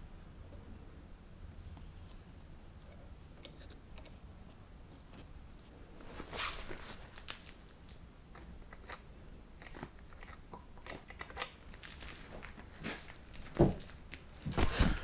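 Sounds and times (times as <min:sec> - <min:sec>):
vinyl and fabric crinkling: 0:05.0 - 0:08.5, 0:11.0 - 0:15.0.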